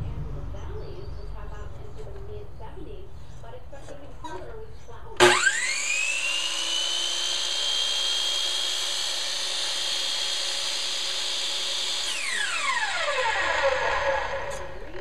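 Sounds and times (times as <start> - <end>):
miter saw whining: 5.2 - 15.0
saw blade spinning down: 5.2 - 15.0.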